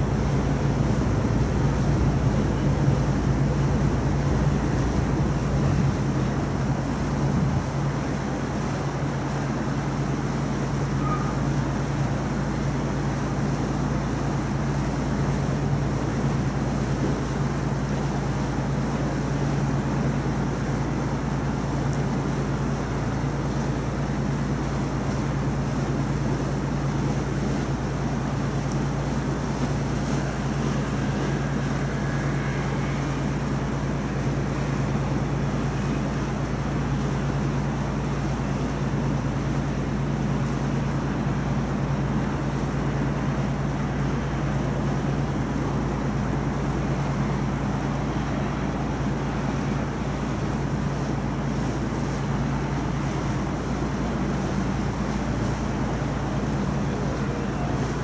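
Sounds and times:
rushing noise: 0.0s - 8.7s, 28.3s - 38.6s
boat engine droning: 0.0s - 58.0s.

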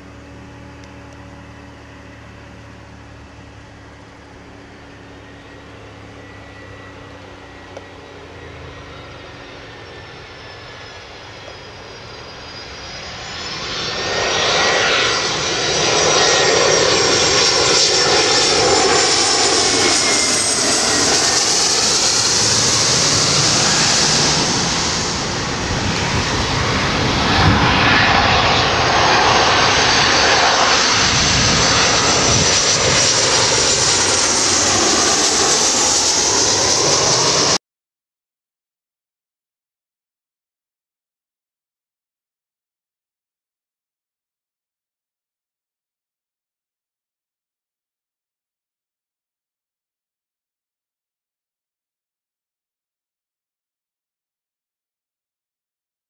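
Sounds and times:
high-pitched whine: 0.0s - 37.6s
jet engines roaring: 0.0s - 37.6s.

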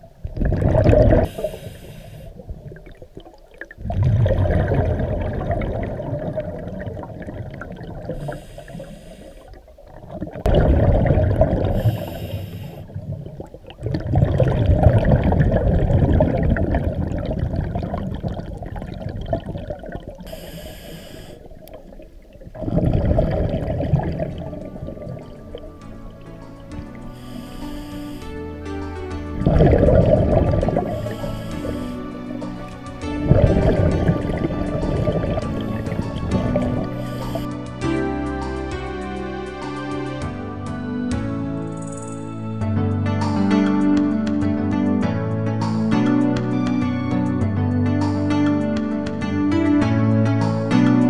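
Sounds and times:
exhaled bubbles rushing: 0.0s - 28.5s, 29.2s - 37.6s
regulator inhale hiss: 1.1s - 2.5s, 8.0s - 9.7s, 11.7s - 13.0s, 20.2s - 21.7s, 27.0s - 28.6s, 30.7s - 32.6s, 35.6s - 37.6s.

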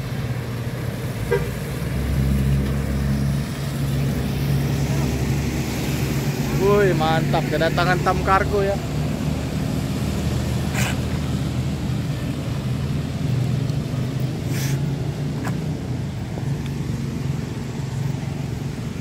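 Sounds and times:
bus diesel engine humming: 0.0s - 19.0s
brief air hisses: 14.5s - 14.9s.

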